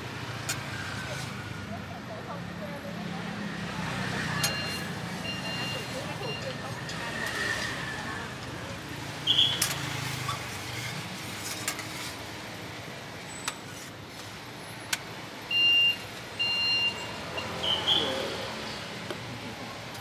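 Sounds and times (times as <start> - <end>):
street traffic: 0.0 - 20.0
short electronic beeps: 4.4 - 6.6, 15.5 - 18.2.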